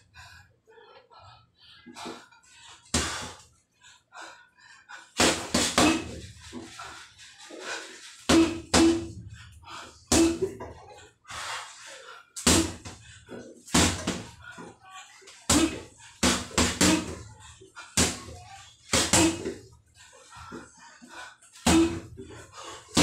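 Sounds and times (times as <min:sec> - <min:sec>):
gloves thudding on punching bag: 0:13.8 - 0:14.3.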